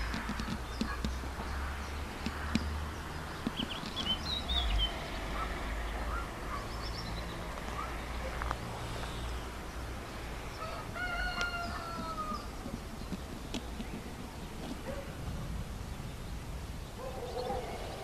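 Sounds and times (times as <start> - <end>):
small birds chirping: 0.0 - 18.0
rooster crowing: 10.6 - 12.5.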